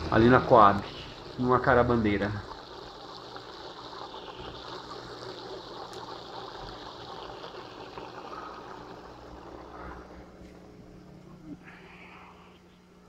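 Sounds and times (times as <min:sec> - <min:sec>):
water trickling in aquarium: 0:00.0 - 0:10.4
faint low hum: 0:07.8 - 0:13.0.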